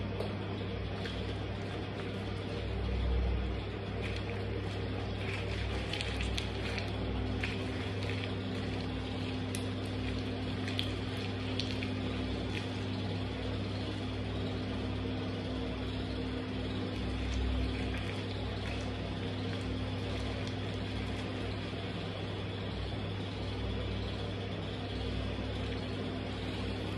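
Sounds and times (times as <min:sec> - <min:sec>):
low hum with hiss: 0:00.0 - 0:26.9
shoe soles squelching on pulp: 0:03.8 - 0:13.2.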